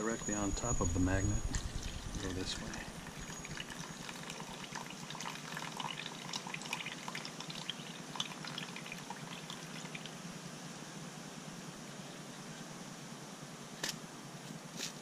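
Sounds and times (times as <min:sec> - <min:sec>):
water dripping into a tub: 0:01.8 - 0:10.2.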